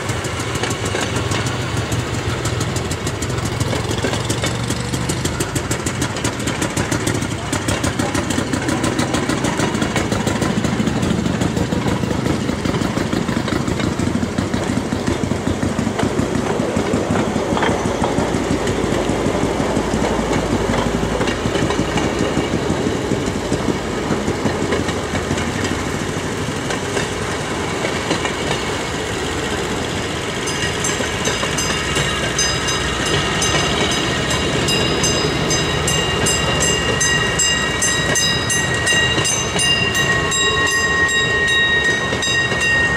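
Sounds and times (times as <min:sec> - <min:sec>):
steel wheels on rails: 0:00.0 - 0:42.9
high ringing tones: 0:30.4 - 0:42.9.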